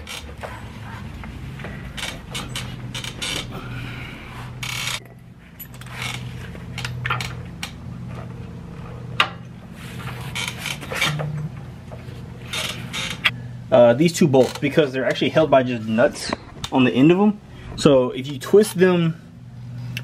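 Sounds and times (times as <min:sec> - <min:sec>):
steady low hum: 0:00.0 - 0:20.0
metal tools clanking: 0:04.7 - 0:07.4.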